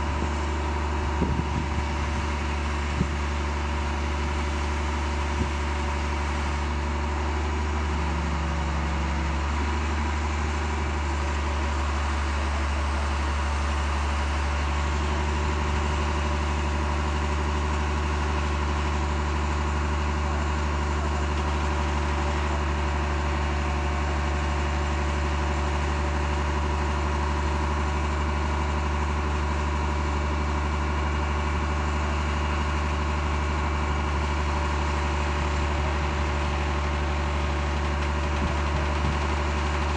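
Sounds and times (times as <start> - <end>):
rail vehicle engine idling: 0.0 - 39.9.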